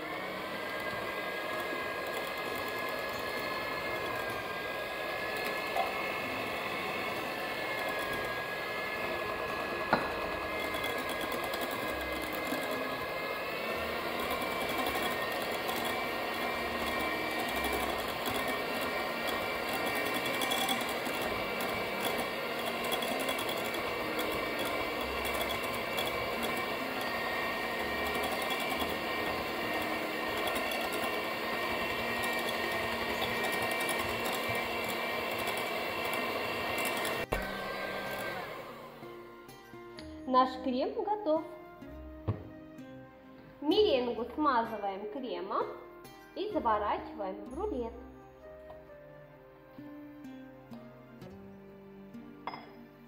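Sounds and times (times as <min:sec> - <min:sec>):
electric hand mixer running: 0:00.0 - 0:39.6.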